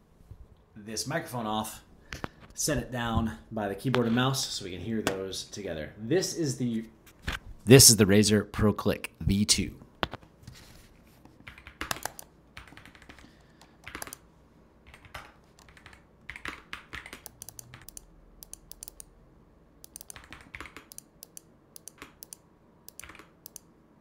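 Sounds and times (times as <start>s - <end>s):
keyboard keys clicking: 11.4s - 14.2s, 14.9s - 19.1s, 19.8s - 23.7s
mouse buttons clicking: 17.2s - 19.1s, 19.8s - 23.7s.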